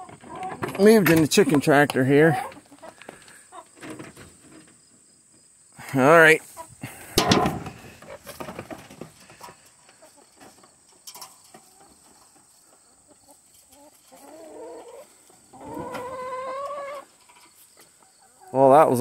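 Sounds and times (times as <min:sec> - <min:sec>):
hens scratching and pecking: 0:00.0 - 0:05.5, 0:06.2 - 0:19.0.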